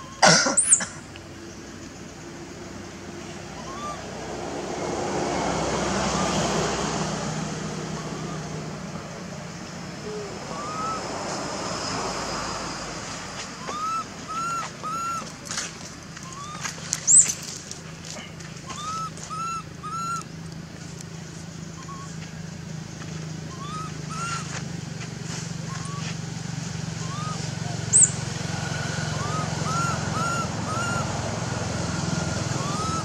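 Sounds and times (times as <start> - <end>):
baby monkey crying coos: 3.4 - 4.1, 10.0 - 11.1, 13.6 - 15.3, 16.2 - 17.3, 18.7 - 20.3, 21.8 - 22.2, 23.5 - 24.6, 25.6 - 26.1, 26.9 - 28.2, 28.9 - 31.2, 32.2 - 33.0.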